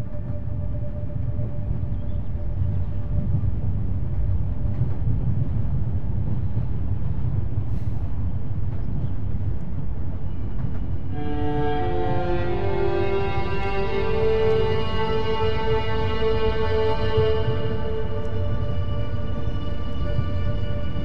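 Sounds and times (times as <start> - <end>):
train rumbling on rails: 0.0 - 21.0
music notes: 11.1 - 21.0.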